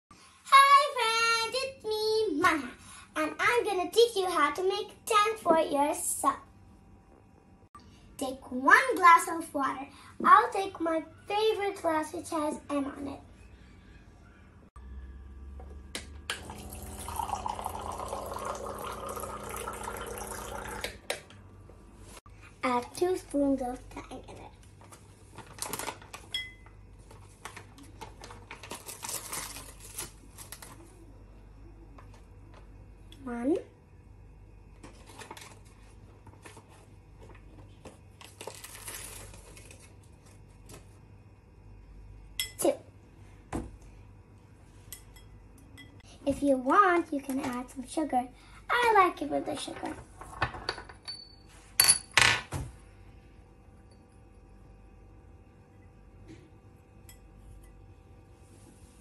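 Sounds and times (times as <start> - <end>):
electric pump humming: 14.8 - 21.7
water pouring into glass: 16.3 - 21.0
pouch crinkling: 27.3 - 30.9, 38.2 - 40.0
spoon scraping in plastic pouch: 38.2 - 39.9.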